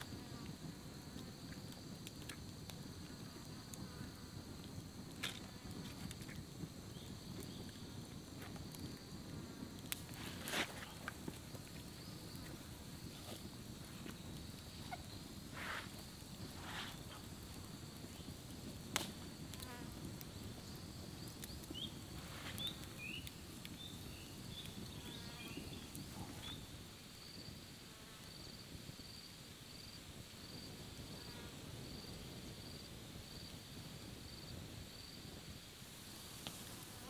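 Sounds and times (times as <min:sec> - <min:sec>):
insects trilling: 0:00.0 - 0:37.0
rhythmic insect chirp pulses: 0:10.8 - 0:27.6.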